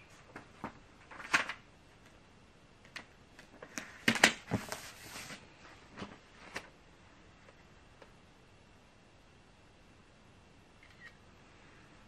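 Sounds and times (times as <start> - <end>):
paper crinkling and rustling: 0.2 - 2.2.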